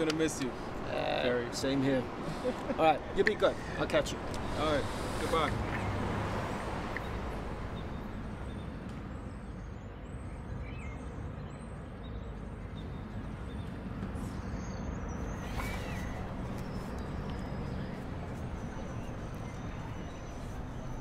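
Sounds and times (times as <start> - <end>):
faint bird chirps: 14.2 - 21.0.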